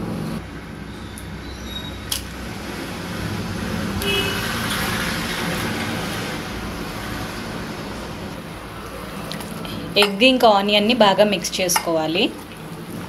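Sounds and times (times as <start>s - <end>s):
vehicle passing rumble: 0.0s - 11.5s
short horn toot: 4.0s - 4.6s.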